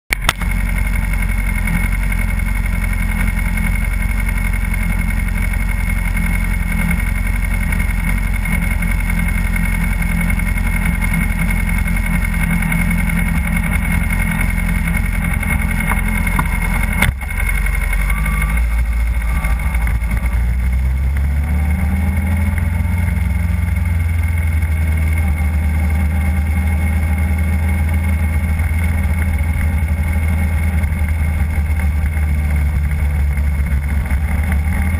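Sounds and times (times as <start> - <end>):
sharp click: 0.1 - 0.5
motorcycle engine idling: 0.1 - 34.9.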